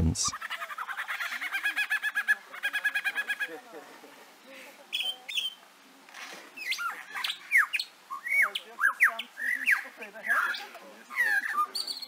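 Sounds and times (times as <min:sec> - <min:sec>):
bird chirps whistles and squawks: 0:04.9 - 0:05.6, 0:06.6 - 0:12.0.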